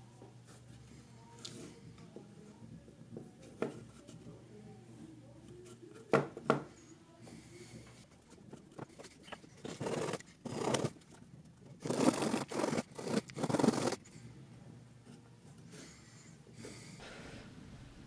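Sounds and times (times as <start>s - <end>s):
faint handling: 0.1s - 16.9s
blade sawing through cork: 9.6s - 10.9s, 11.8s - 14.0s.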